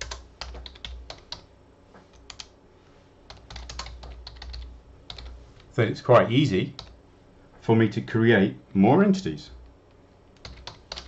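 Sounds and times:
typing on computer keyboard: 0.0 - 1.5, 2.2 - 2.5, 3.3 - 5.3, 6.8 - 7.0, 10.4 - 11.0.

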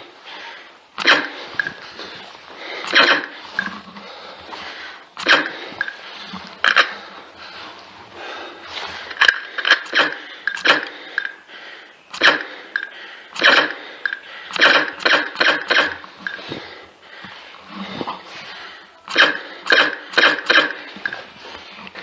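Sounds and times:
electronic blaster shots: 1.0 - 1.5, 2.9 - 3.4, 5.2 - 5.6, 12.1 - 12.5, 13.4 - 13.8, 14.5 - 16.0, 19.1 - 20.8.

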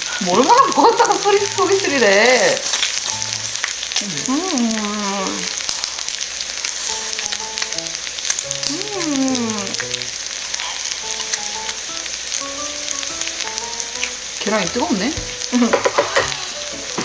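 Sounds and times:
meat sizzling on a grill pan: 0.0 - 17.0
light background music: 0.2 - 4.8, 11.0 - 17.0.

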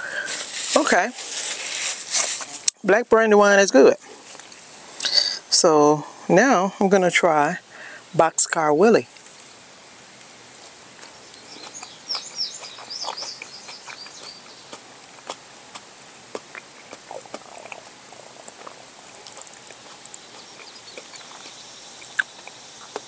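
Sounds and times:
person chewing tomato: 10.6 - 23.0
high squeaky chirps: 11.2 - 14.6.

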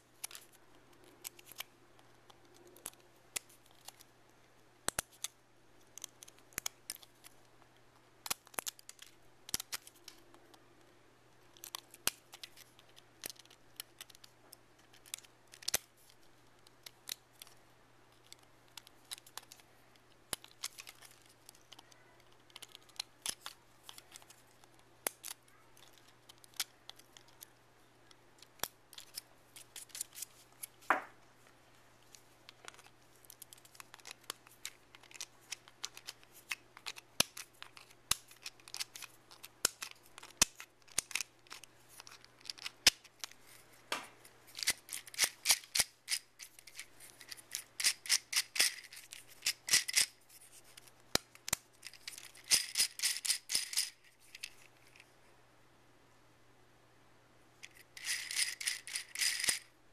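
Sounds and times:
plastic clicking and snapping: 4.9 - 7.3.

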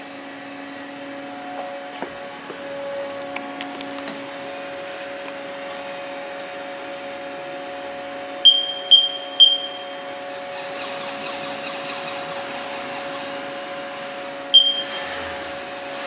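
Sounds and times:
machine humming: 0.0 - 16.0
fixed tones: 8.4 - 10.1, 14.5 - 15.1
short high beeps: 8.5 - 10.0, 14.6 - 15.0.

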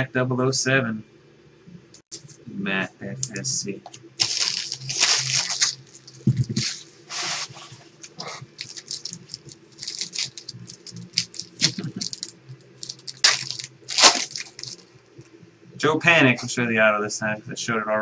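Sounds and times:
plastic wrapper crinkling: 4.2 - 14.9.

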